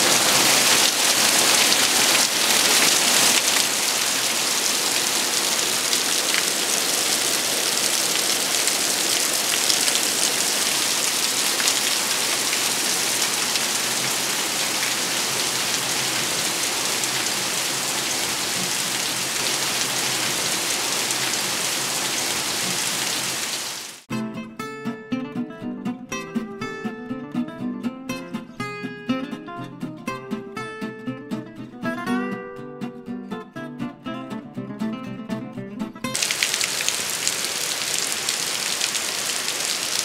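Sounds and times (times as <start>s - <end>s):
heavy rain falling: 0.0s - 24.1s, 36.2s - 40.0s.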